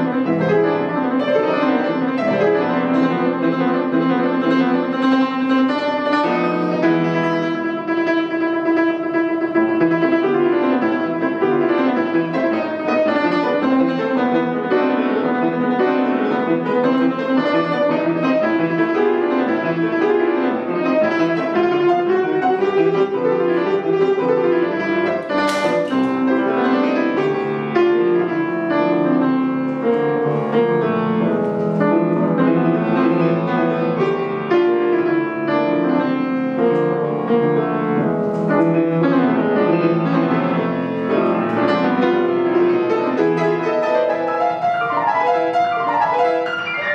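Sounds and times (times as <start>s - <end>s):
solo grand piano: 0.0s - 46.9s.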